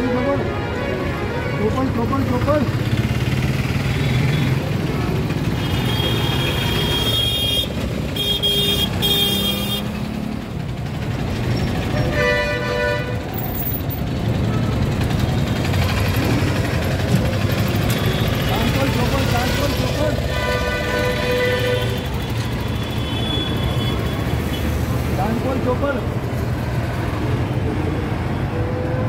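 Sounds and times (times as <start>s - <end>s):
city street traffic: 0.0s - 29.0s
low full vehicle horn: 5.6s - 9.9s, 12.0s - 13.4s, 20.2s - 24.3s.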